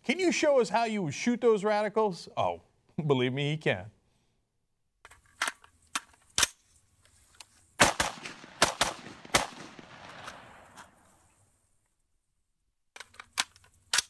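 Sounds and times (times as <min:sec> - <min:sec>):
rifle shots with echo: 0:07.8 - 0:11.0.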